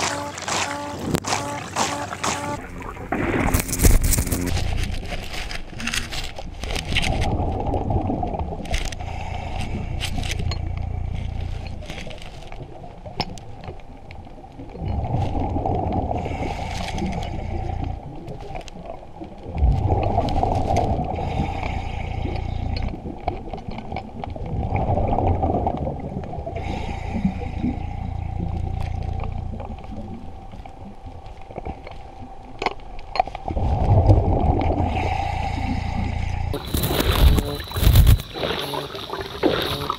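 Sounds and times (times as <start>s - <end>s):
exhaled bubbles gurgling: 0.0s - 39.9s.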